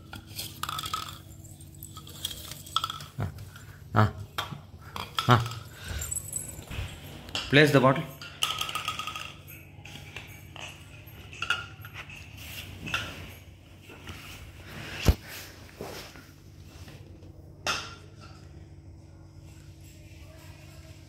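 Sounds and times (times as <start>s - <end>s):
bottles knocking and clinking: 0.1s - 13.4s.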